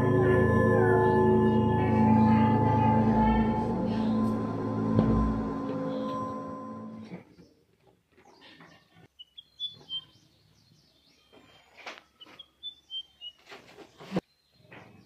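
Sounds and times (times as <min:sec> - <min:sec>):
birds chirping: 0:00.0 - 0:07.6, 0:08.2 - 0:15.0
sharp knock: 0:05.0 - 0:05.5.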